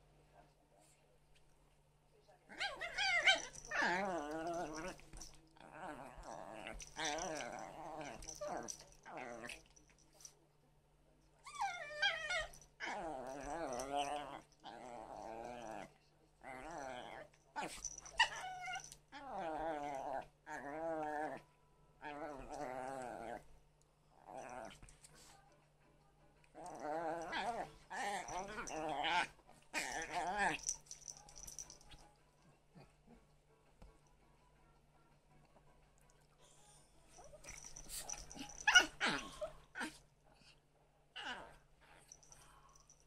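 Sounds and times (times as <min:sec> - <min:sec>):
animals play-fighting: 0:02.5 - 0:10.2, 0:11.5 - 0:15.9, 0:16.5 - 0:21.4, 0:26.4 - 0:32.0, 0:37.1 - 0:40.1.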